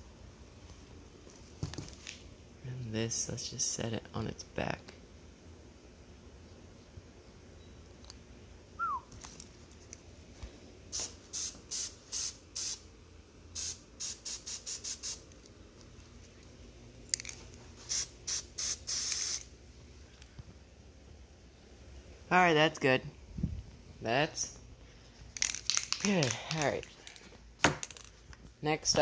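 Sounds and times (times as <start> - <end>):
spray paint can hissing: 10.9 - 12.9, 13.6 - 15.2, 17.9 - 19.5.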